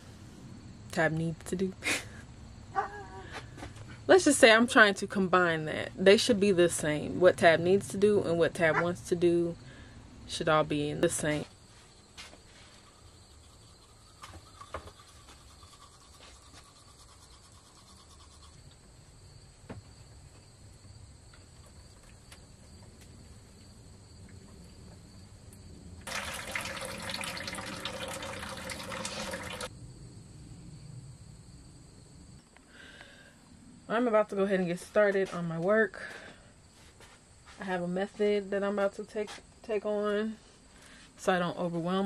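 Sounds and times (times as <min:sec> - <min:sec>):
toothbrush scrubbing: 0:12.5 - 0:18.7
water running: 0:26.0 - 0:29.7.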